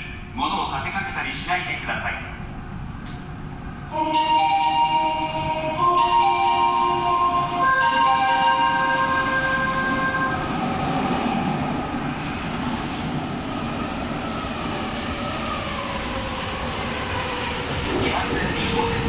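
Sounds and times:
subway train rumbling in: 0.0 - 19.0
station approach melody: 4.0 - 10.4.

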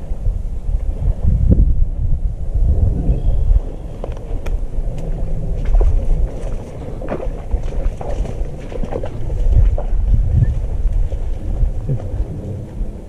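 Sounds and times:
wind buffeting microphone: 0.0 - 13.0
dry stalks rustling and snapping: 3.9 - 12.8.

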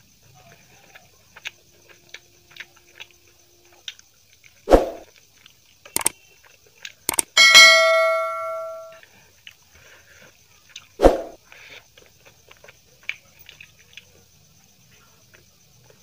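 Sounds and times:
wet chewing and lip smacks: 0.9 - 7.0
bell chime: 7.2 - 9.0.

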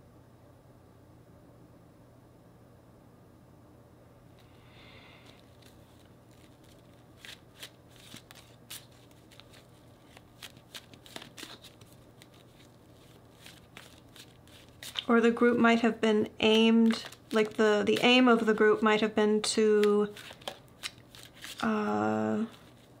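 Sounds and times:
cards being shuffled by hand: 5.1 - 15.7, 16.4 - 23.0.

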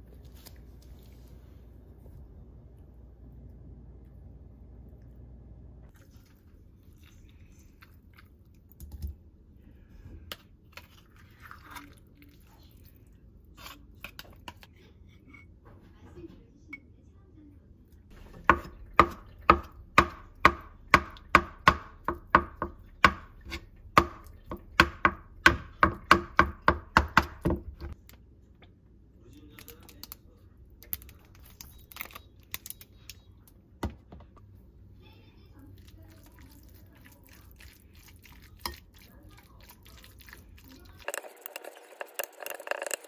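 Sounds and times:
knife chopping on cutting board: 18.2 - 27.8.

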